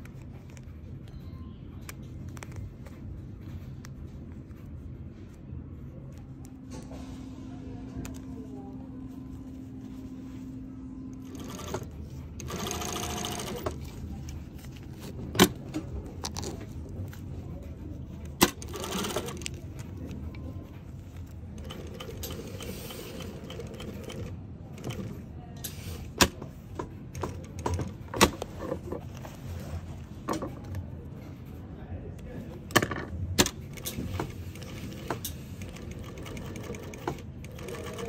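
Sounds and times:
sewing machine stitching: 0:11.2 - 0:13.8, 0:18.4 - 0:19.6, 0:21.6 - 0:25.2, 0:33.4 - 0:38.0.

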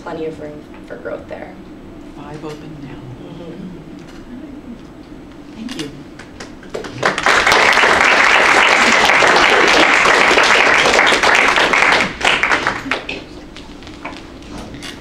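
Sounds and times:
audience applauding: 0:06.2 - 0:13.3.

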